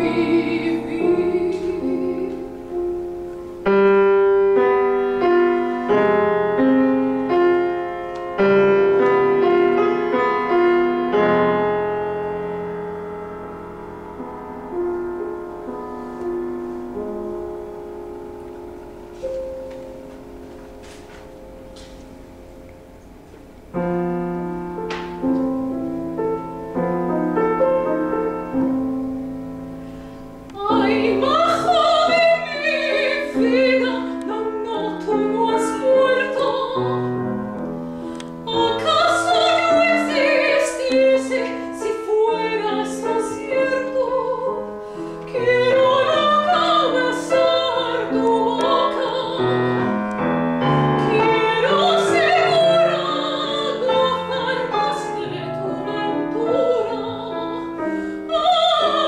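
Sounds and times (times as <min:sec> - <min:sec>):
woman singing with vibrato: 0:00.0 - 0:03.0, 0:30.5 - 0:37.2, 0:38.4 - 0:44.7, 0:45.3 - 0:49.9, 0:51.0 - 0:59.0
grand piano: 0:00.0 - 0:59.0.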